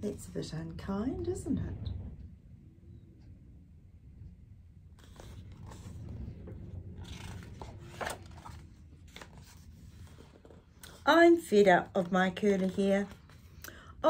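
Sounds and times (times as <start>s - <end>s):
page turning: 5.0s - 13.6s
paper rustling: 5.0s - 13.6s.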